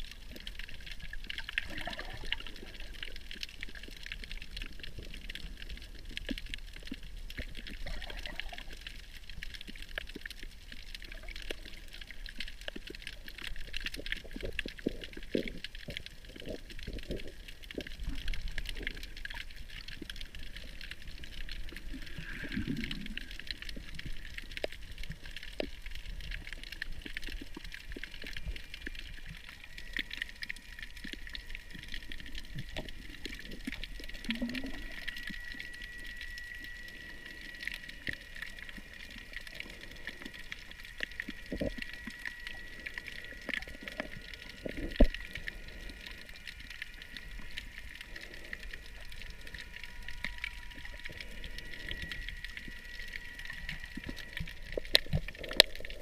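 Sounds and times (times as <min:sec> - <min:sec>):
small clicks and crackles: 0:00.0 - 0:56.0
underwater rush of water: 0:00.0 - 0:56.0
thin high whine: 0:28.4 - 0:55.2.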